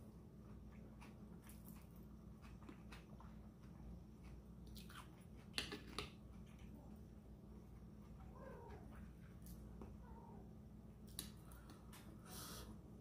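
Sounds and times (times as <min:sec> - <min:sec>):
crunchy chewing: 0:00.3 - 0:06.8.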